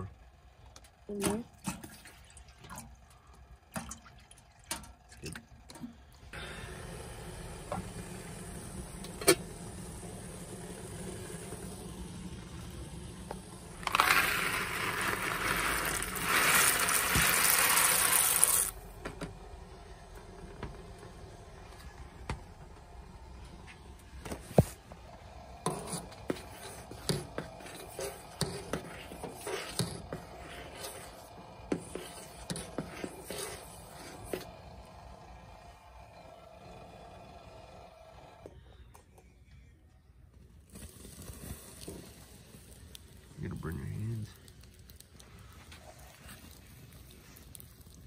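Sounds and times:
spoon stirring in metal pot: 25.7 - 34.5.

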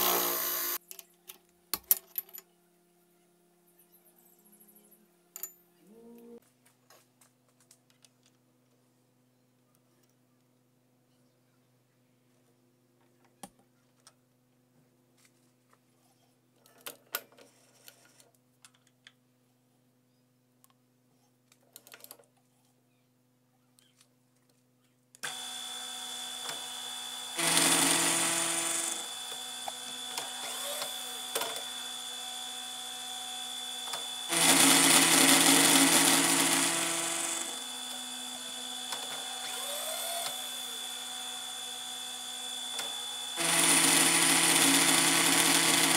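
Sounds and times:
milling cutter cutting metal: 0.0 - 0.8, 25.2 - 45.9
milling spindle whine: 25.2 - 45.9.

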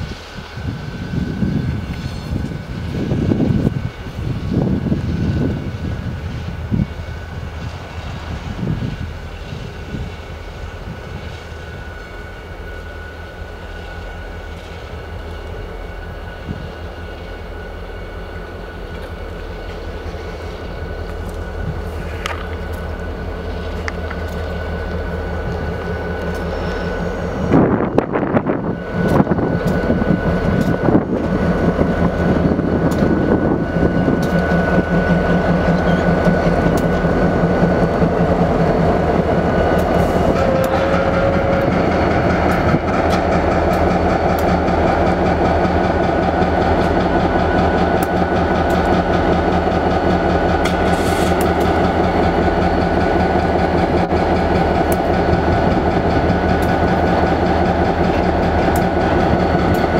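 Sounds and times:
diesel locomotive engine droning: 0.0 - 59.9
wheels clicking on rails: 18.8 - 59.9.

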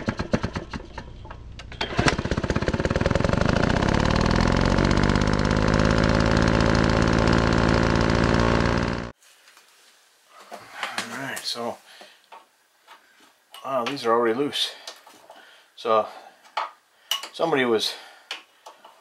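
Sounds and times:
engine-like rattling buzz: 0.0 - 9.1.

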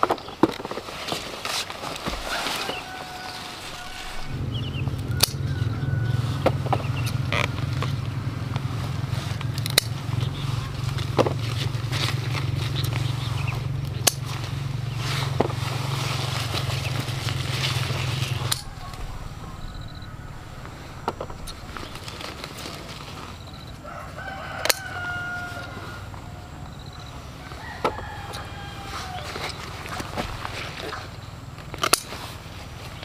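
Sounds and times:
leaves rustling: 0.0 - 33.0
steady low hum: 2.1 - 24.2
scissors snipping stems: 5.1 - 5.5, 9.4 - 14.5, 24.6 - 25.0, 31.6 - 32.2.

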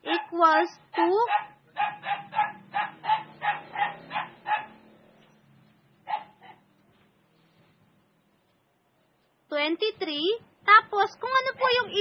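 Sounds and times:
dog yapping: 0.0 - 4.8, 6.1 - 6.6.

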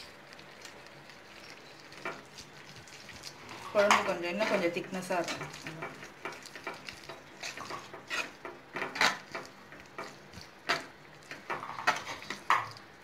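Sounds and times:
spatula scraping a pan: 1.7 - 12.8.

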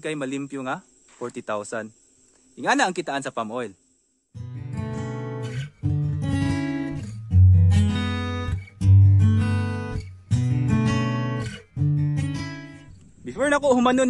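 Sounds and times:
acoustic guitar strumming chords: 4.4 - 13.0.

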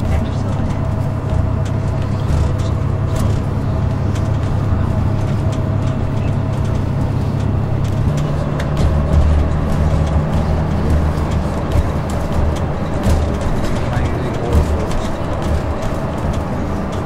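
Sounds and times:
bus engine and tyre drone: 0.0 - 17.0
light rattles: 0.0 - 17.0.

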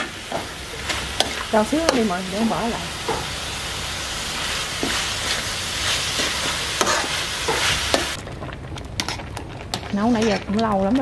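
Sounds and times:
food sizzling in a wok: 0.0 - 8.2
spatula stirring and scraping: 0.3 - 3.3, 4.4 - 8.2, 9.0 - 11.0.

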